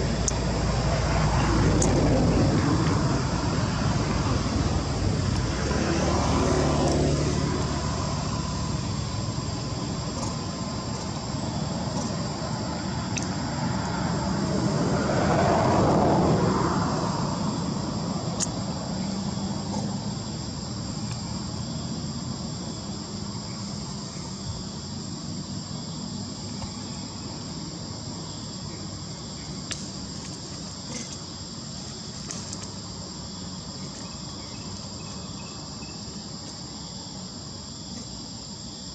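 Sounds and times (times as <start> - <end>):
high insect drone: 0.0 - 38.9
motor vehicle passing: 0.4 - 20.4.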